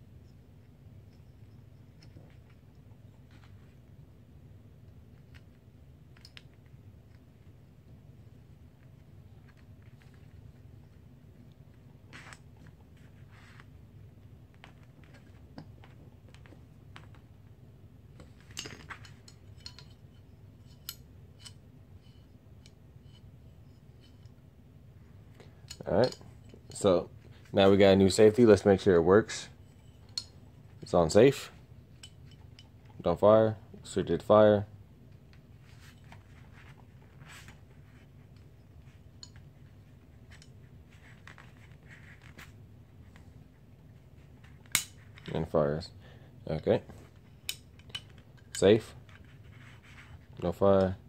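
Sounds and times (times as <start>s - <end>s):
metallic clicks and clinks: 18.4s - 20.1s.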